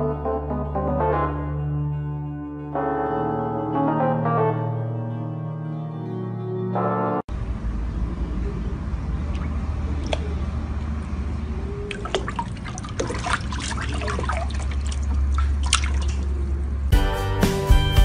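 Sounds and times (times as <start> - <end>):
music: 0.0 - 7.3, 16.9 - 18.0
water splashing in a plastic tub: 9.3 - 10.4, 11.9 - 16.5.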